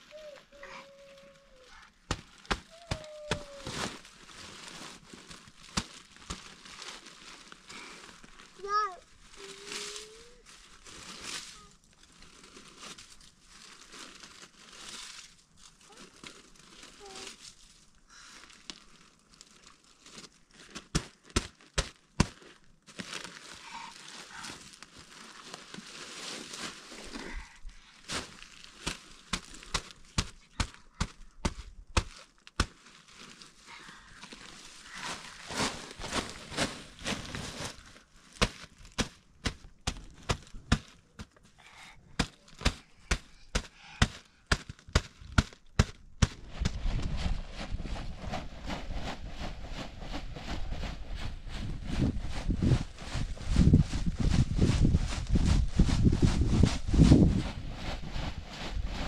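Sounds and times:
rustling: 0.0s - 59.0s.

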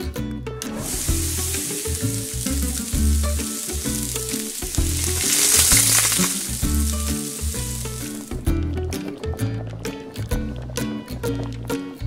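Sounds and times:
background music with bass line: 0.0s - 12.0s
curry paste sizzling in oil: 0.7s - 8.5s.

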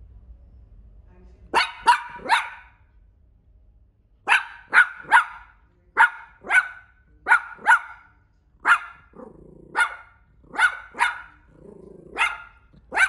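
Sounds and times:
small dog yapping: 1.6s - 2.8s, 4.3s - 13.0s.

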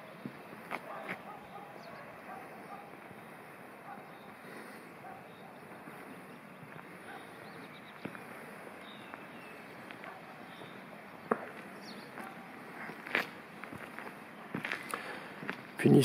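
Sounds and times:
footstep clicks: 0.2s - 1.4s, 7.9s - 15.7s.

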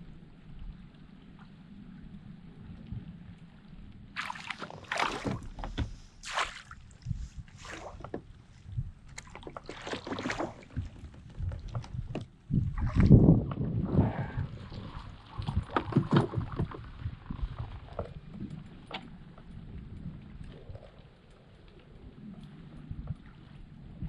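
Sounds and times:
fish splashing at surface: 4.2s - 5.4s, 6.2s - 6.8s.

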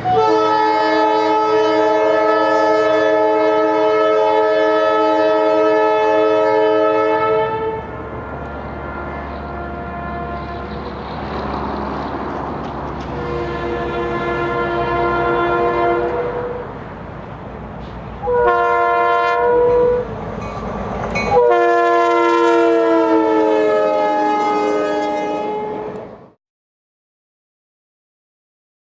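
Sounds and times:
locomotive horn blasts: 0.0s - 11.3s, 12.9s - 16.8s, 18.2s - 20.2s, 21.2s - 26.3s
locomotive engine rumble: 0.0s - 26.3s.

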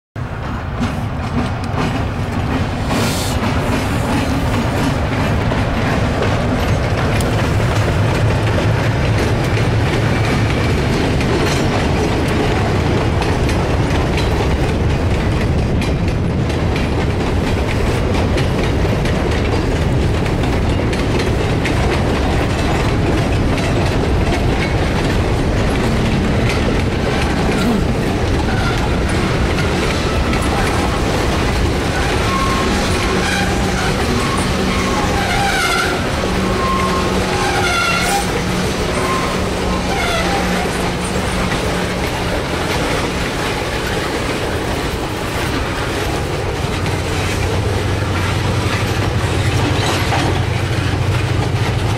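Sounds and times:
freight train rumbling past: 0.2s - 51.9s
wheels clacking over rail joints: 0.2s - 51.9s.

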